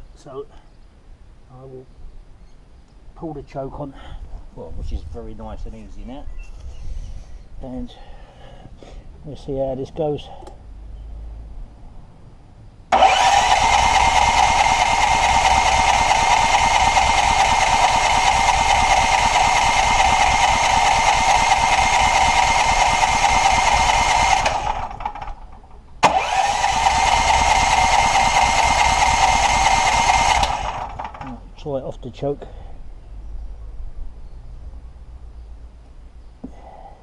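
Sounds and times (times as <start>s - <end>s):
starter motor cranking engine: 12.9s - 31.4s.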